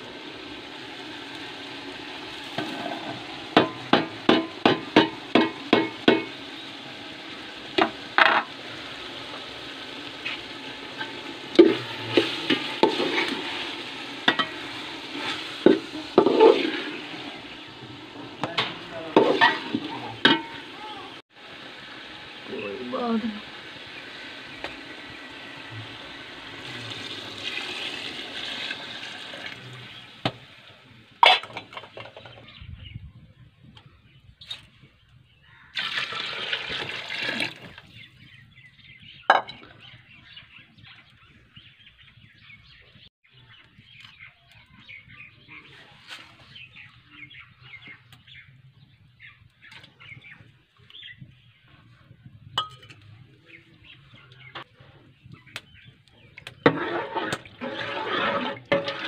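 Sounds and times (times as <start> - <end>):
water pouring into pot: 0.0 - 20.7, 21.3 - 30.7, 35.7 - 38.0, 56.6 - 59.0
faint fire crackling: 0.0 - 31.2, 37.7 - 59.0.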